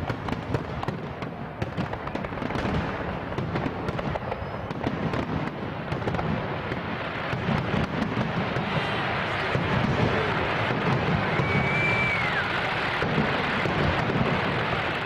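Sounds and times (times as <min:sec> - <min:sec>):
fireworks bangs and crackles: 0:00.0 - 0:15.0.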